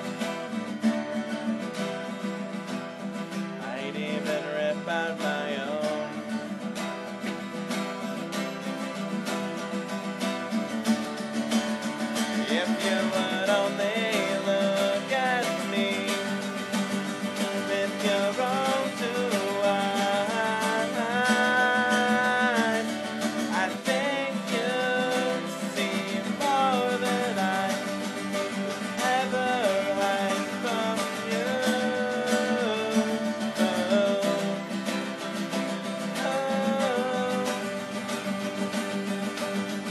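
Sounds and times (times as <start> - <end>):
acoustic guitar strumming: 0.0 - 39.9
person singing: 3.6 - 6.6, 12.1 - 38.5.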